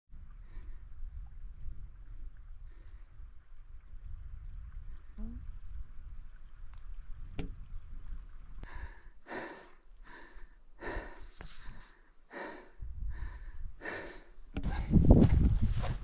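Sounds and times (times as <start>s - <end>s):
person breathing in and out: 8.6s - 15.2s.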